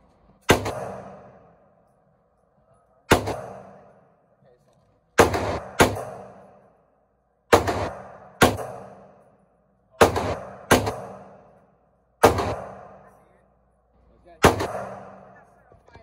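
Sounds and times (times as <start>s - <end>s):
gunshots echoing indoors: 0.4s - 2.0s, 3.1s - 4.2s, 5.2s - 13.2s, 14.4s - 15.7s.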